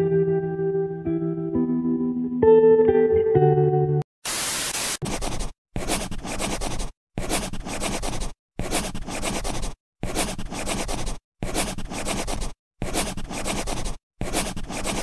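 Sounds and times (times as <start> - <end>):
harsh scratchy noise: 4.3 - 15.0.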